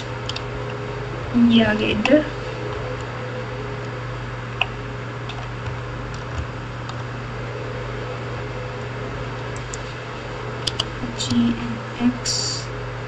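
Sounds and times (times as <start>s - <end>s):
low hum and hiss: 0.0s - 13.0s
keyboard keys clicking: 10.7s - 11.4s.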